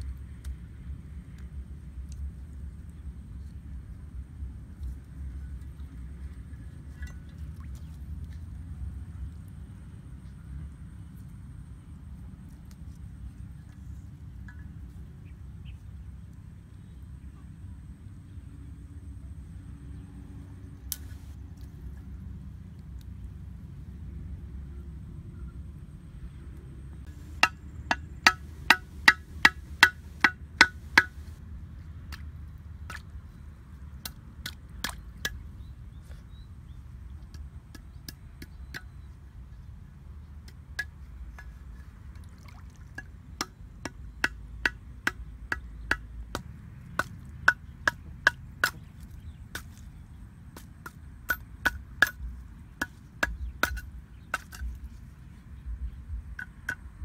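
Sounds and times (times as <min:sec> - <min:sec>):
steady low rumble: 0:00.0 - 0:34.1
machete chopping wooden sticks: 0:27.1 - 0:31.4.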